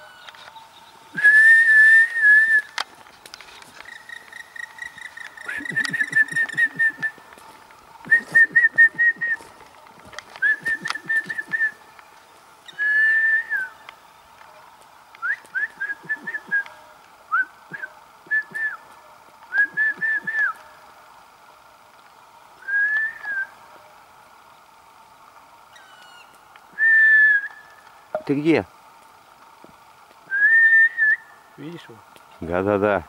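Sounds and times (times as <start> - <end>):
woodpecker whistled calls: 0.0 - 7.3, 8.0 - 9.5, 10.4 - 14.0, 15.2 - 18.9, 19.5 - 20.6, 22.6 - 23.9, 25.7 - 28.3, 30.2 - 31.4.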